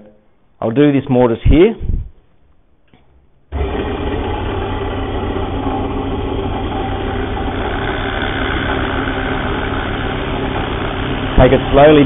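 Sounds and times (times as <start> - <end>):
drill press motor humming: 3.5 - 12.0.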